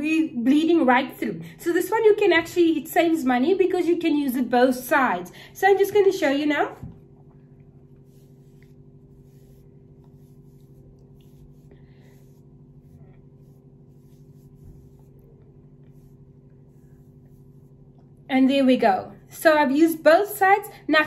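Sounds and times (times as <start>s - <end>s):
steady low hum: 0.0s - 21.0s
cotton pad rubbing skin: 7.7s - 18.2s.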